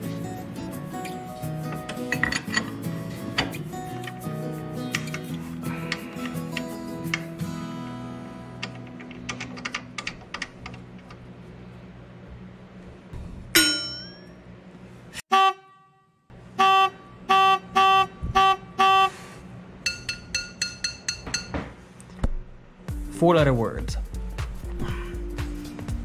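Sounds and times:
short horn-like toots: 16.6 - 19.4.

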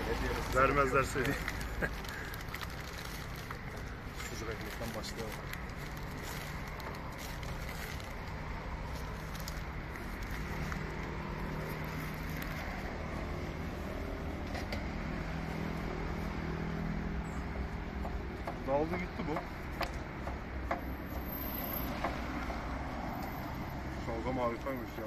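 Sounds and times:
street background noise: 0.0 - 25.0.

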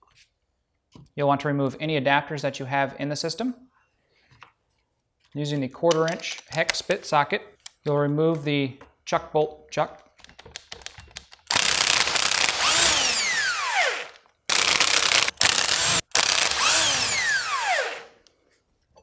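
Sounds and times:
impact driver rattling: 11.5 - 18.1.

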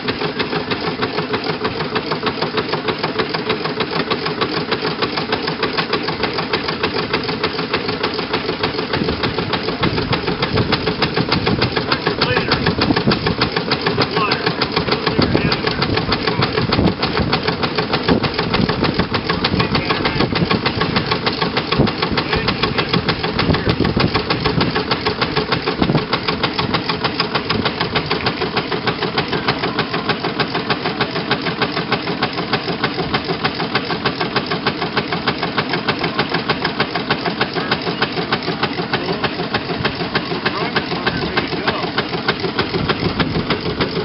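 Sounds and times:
steam engine running: 0.0 - 44.0.

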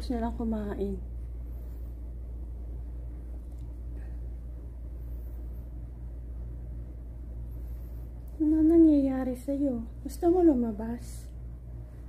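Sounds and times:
low indoor hum: 0.0 - 12.0.

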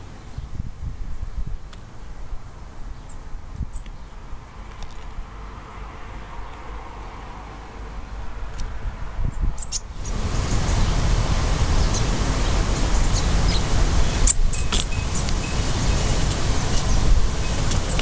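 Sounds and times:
wind on microphone: 0.0 - 2.4, 8.4 - 18.0
high bird chirps: 9.6 - 18.0.

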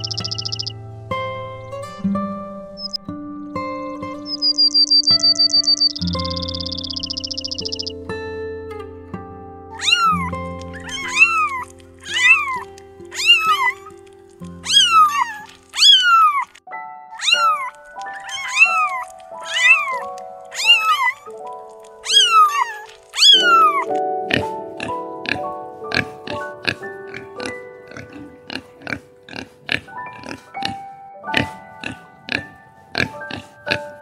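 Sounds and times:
background music with held notes: 0.0 - 34.0
cat meowing: 9.8 - 13.9, 14.6 - 16.6, 17.2 - 21.4, 22.0 - 23.9.

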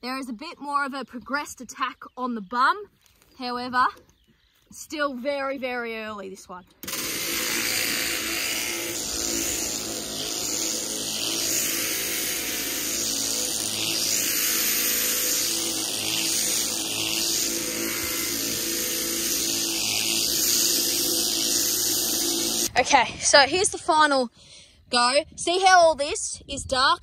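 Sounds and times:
electric shears motor hum: 6.8 - 22.8.

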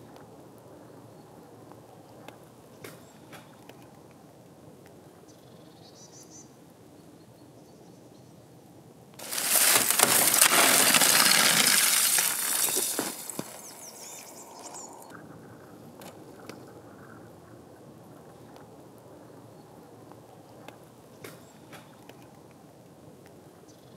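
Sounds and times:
boots crunching through snow: 9.2 - 14.2
thin ice breaking: 9.2 - 14.9.

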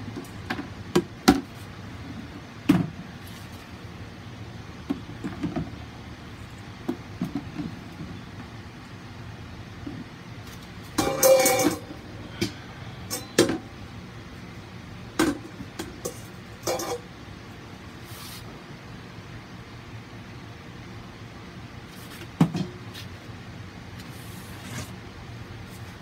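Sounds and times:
steady low hum: 0.0 - 26.0
objects knocking and clinking: 11.0 - 12.0.

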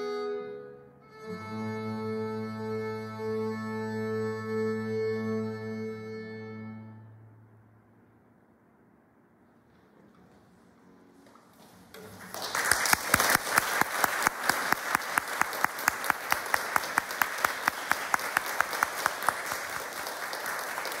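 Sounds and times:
audience applause: 12.0 - 21.0.

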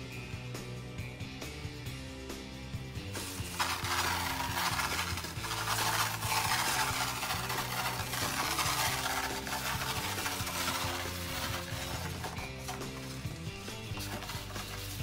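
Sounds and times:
soft background music: 0.0 - 15.0
glass fragments pouring: 3.2 - 13.3.

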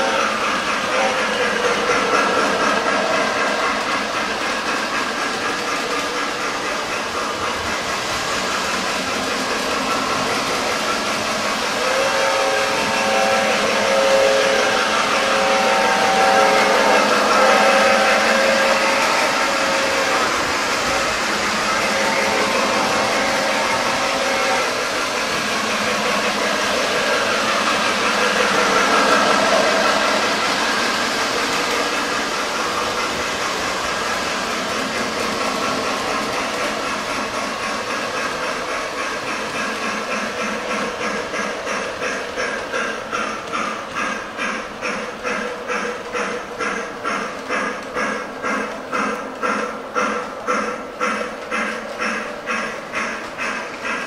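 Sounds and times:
toy trains rumbling clatter: 0.0 - 54.0
toy locomotive horn blasts: 11.8 - 24.9, 25.6 - 33.4.

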